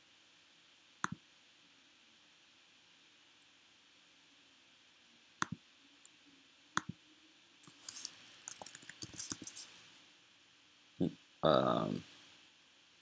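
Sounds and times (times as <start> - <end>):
computer keyboard typing: 7.6 - 9.6.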